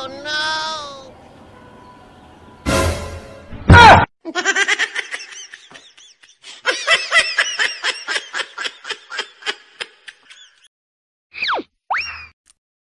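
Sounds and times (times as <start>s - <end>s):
person laughing in bursts: 4.3s - 10.3s.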